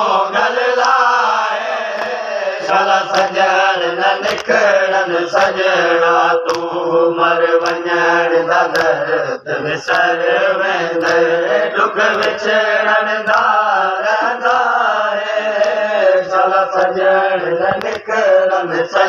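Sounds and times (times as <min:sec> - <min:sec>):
men chanting a lament: 0:00.0 - 0:19.0
hands slapping chest: 0:00.8 - 0:01.0, 0:01.9 - 0:03.4, 0:04.2 - 0:04.6, 0:05.3 - 0:05.6, 0:06.4 - 0:06.8, 0:07.6 - 0:07.9, 0:08.6 - 0:09.0, 0:09.8 - 0:10.2, 0:10.9 - 0:11.3, 0:12.0 - 0:12.5, 0:13.2 - 0:13.6, 0:15.6 - 0:15.8, 0:17.7 - 0:18.1.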